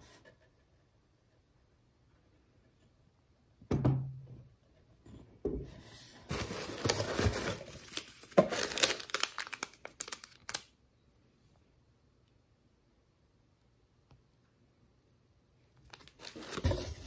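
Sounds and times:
tissue paper crinkling: 6.3s - 10.6s, 15.9s - 17.0s.

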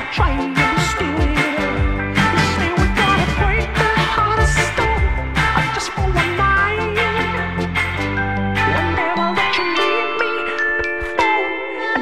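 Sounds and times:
pop song: 0.0s - 12.0s.

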